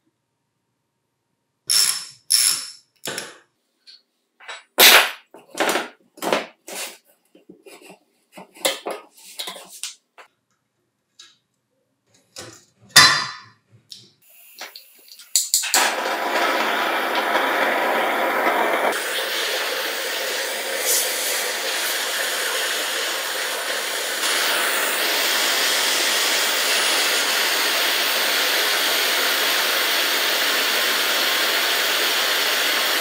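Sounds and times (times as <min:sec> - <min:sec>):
loud steady hiss: 0:14.3 - 0:33.0.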